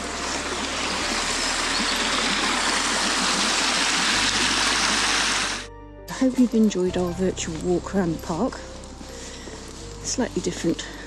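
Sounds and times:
stream rushing over rocks: 0.0 - 5.7.

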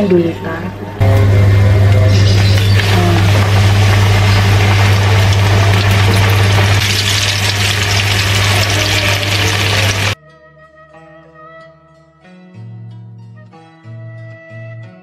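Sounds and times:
low hum: 0.0 - 10.2
chicken deep-frying in oil: 1.0 - 10.2.

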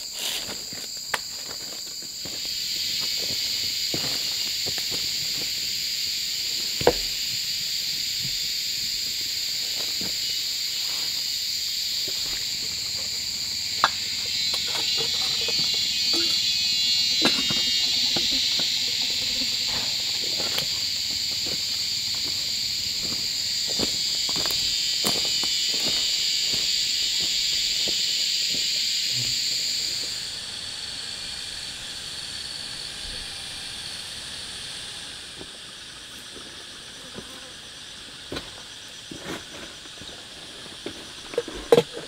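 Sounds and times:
insects chirping: 0.0 - 42.0.

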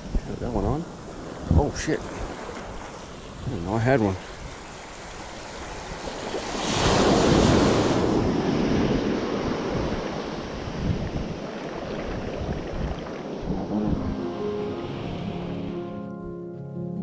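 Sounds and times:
wind buffeting microphone: 0.0 - 14.2
ocean wave washing in: 4.0 - 16.0.

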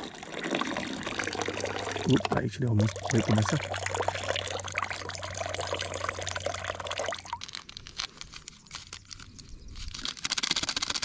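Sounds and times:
water pouring into lake: 0.0 - 8.4.

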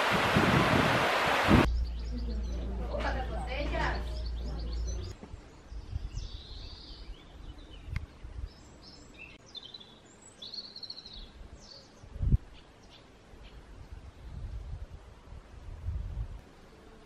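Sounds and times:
wind rumble: 0.0 - 8.6, 13.7 - 16.4
small birds chirping: 1.7 - 14.9.

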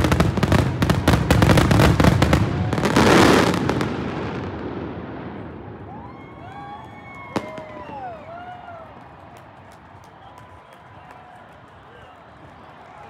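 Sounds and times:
fireworks bangs and crackles: 0.0 - 8.8.

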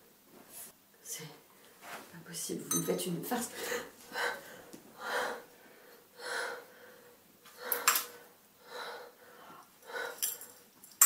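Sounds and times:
person breathing breathily: 3.5 - 10.7.

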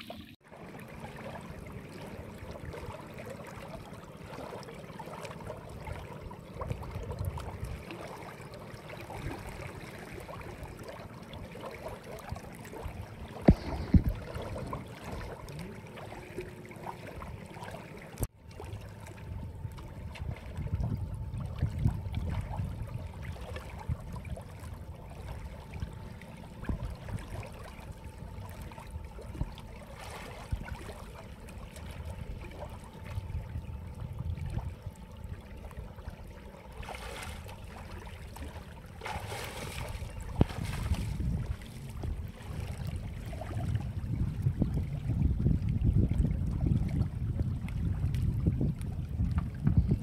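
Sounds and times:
water lapping: 0.0 - 50.0
water splashes: 0.0 - 50.0
wind rumbling on microphone: 5.7 - 8.1, 12.1 - 15.7, 18.2 - 50.0.

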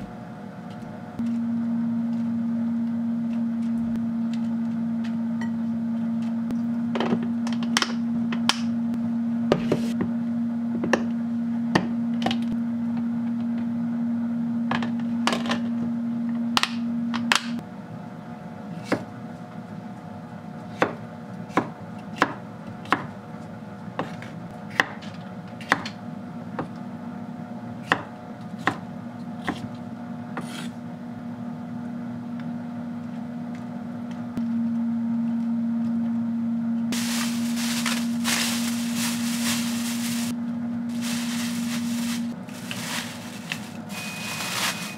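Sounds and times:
steady low hum: 34.3 - 44.9
plastic bag crinkling: 37.0 - 40.3, 40.9 - 44.9.

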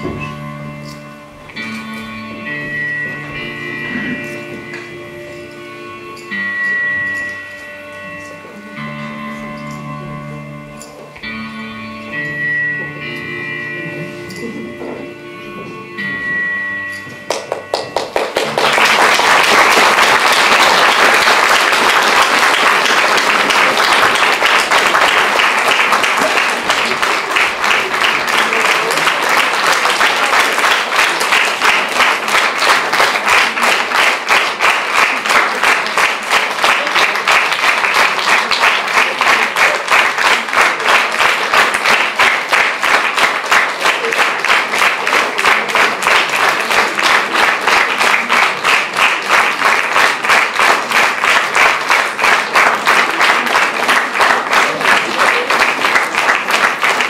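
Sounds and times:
closing music: 0.0 - 57.0
rhythmic clapping in unison: 16.9 - 57.0
audience applauding: 17.3 - 57.0.

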